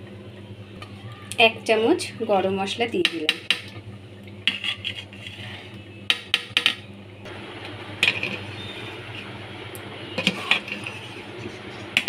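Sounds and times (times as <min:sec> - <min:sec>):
low steady hum: 0:00.0 - 0:12.0
metal ladle scraping pot: 0:04.4 - 0:05.7, 0:08.0 - 0:09.3, 0:10.2 - 0:12.0.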